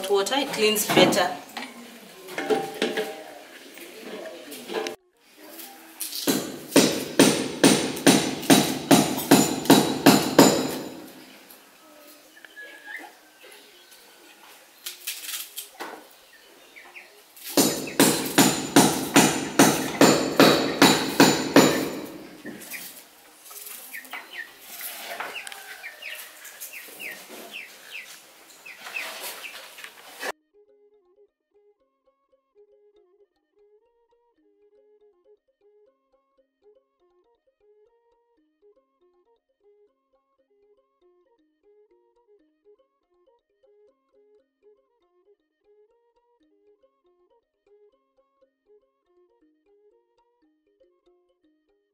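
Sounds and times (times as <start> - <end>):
heavy ringing knocks: 6.3 - 11.1, 17.6 - 22.4
chickens clucking: 12.0 - 15.0, 16.0 - 17.3, 22.2 - 30.2.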